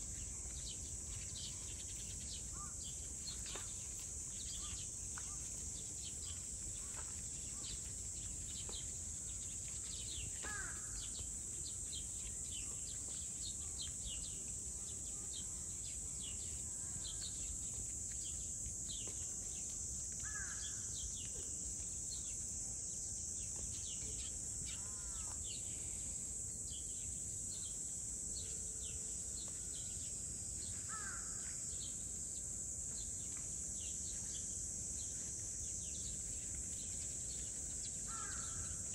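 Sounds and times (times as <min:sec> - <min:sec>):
insects buzzing: 0:07.6 - 0:21.2, 0:29.8 - 0:31.8, 0:33.0 - 0:38.9.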